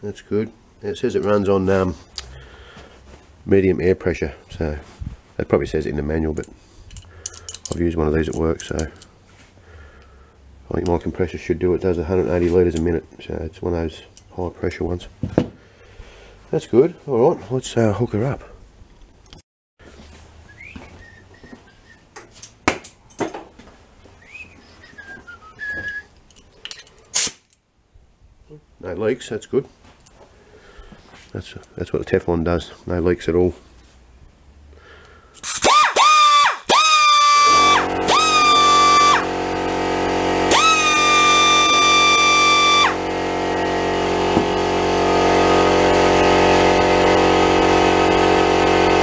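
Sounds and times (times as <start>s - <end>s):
person whistling: 20.5s - 22.1s, 24.2s - 26.1s
short hiss of air: 27.1s - 27.5s
air compressor running: 35.4s - 49.0s
die grinder whining: 35.5s - 49.0s.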